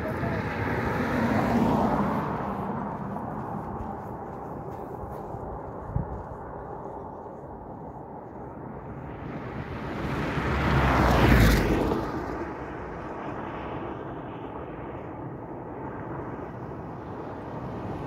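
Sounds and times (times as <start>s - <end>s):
car driving past: 0.0s - 4.9s, 9.2s - 12.6s
steady road noise: 0.0s - 18.0s.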